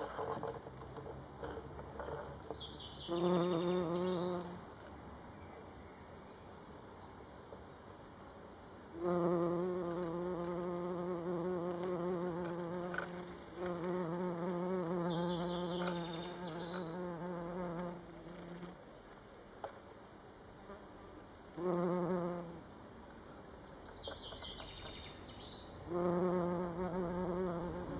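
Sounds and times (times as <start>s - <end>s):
bumblebee buzzing: 3.0s - 4.6s, 8.9s - 18.8s, 21.6s - 22.6s, 25.8s - 27.9s.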